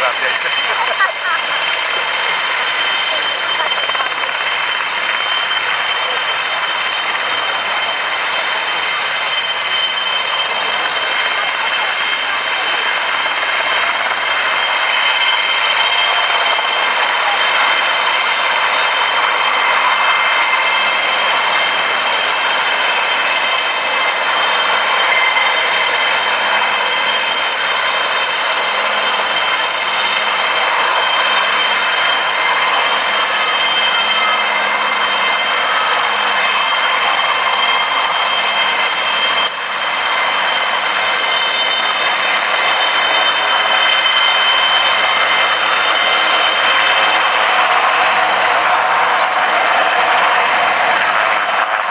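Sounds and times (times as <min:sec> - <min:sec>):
helicopters flying past: 0:00.0 - 0:51.9
turbine engine whine: 0:00.0 - 0:51.9.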